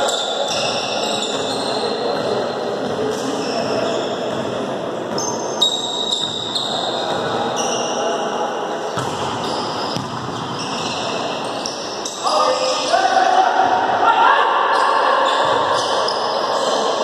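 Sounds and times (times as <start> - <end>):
echoing hubbub of players: 0.0 - 17.0
volleyball being hit: 9.0 - 10.4.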